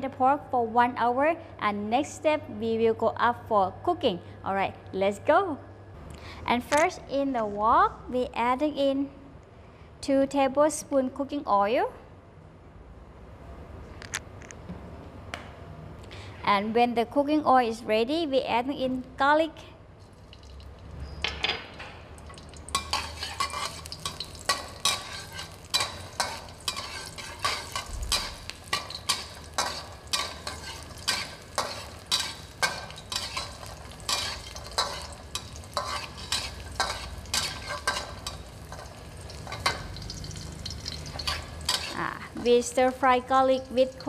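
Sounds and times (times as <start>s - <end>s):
garlic sizzling in hot oil: 22.2s - 44.0s
metal spatula scraping a wok: 22.7s - 42.1s.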